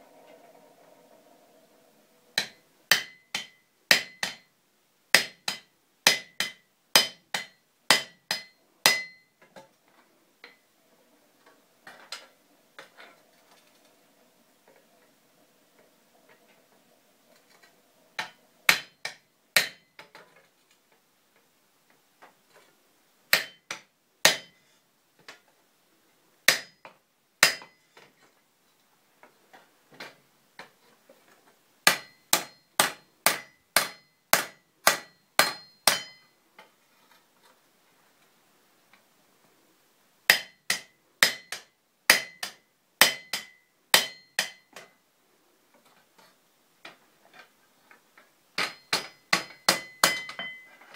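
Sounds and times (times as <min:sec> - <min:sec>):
hammer striking punch on anvil: 0:02.4 - 0:04.5, 0:05.2 - 0:09.3, 0:18.2 - 0:19.9, 0:23.3 - 0:23.7, 0:26.5 - 0:26.8, 0:27.4 - 0:27.8, 0:31.9 - 0:36.3, 0:40.3 - 0:44.9, 0:48.6 - 0:50.7.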